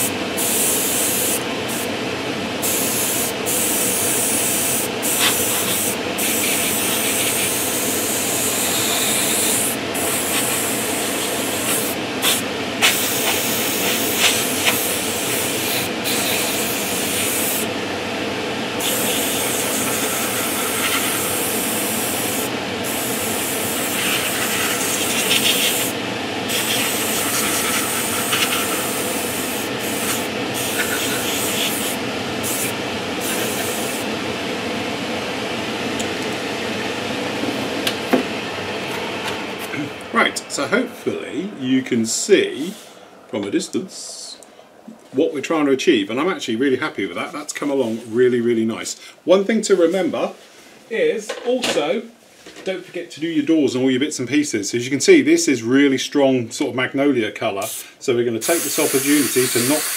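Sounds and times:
airbrush hissing: 0:00.0 - 0:01.9, 0:02.6 - 0:17.7, 0:18.8 - 0:34.1, 0:57.6 - 0:59.9.

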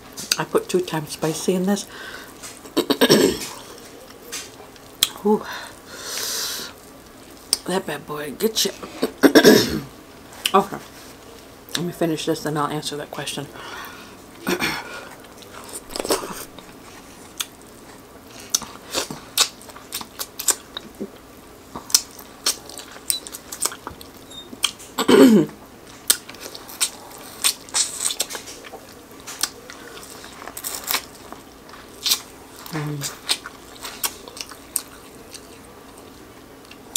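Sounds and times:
wet chewing and smacking: 0:15.1 - 0:36.9
corn kernels crunching: 0:26.0 - 0:36.8.

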